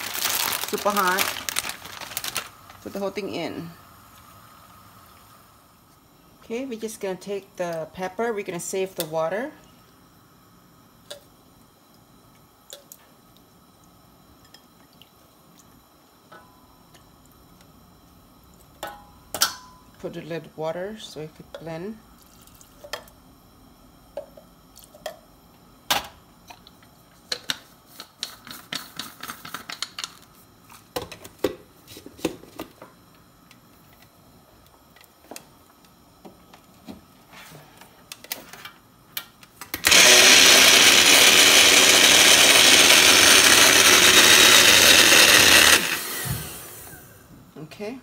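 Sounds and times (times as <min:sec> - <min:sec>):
electric blender running: 0:39.8 - 0:47.2.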